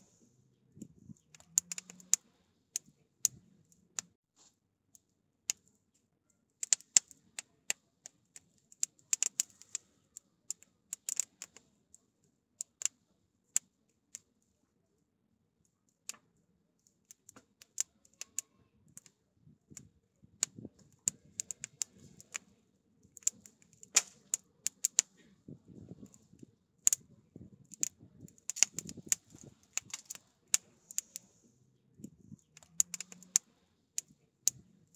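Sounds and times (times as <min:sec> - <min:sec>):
wood fire crackling: 0:01.1 - 0:03.4, 0:08.8 - 0:09.9, 0:10.5 - 0:11.6, 0:19.7 - 0:22.5, 0:23.1 - 0:31.4, 0:32.0 - 0:34.6.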